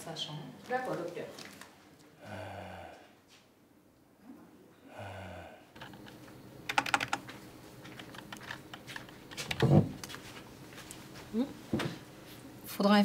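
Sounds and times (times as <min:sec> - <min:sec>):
keyboard key clicks: 0:06.7 - 0:07.2.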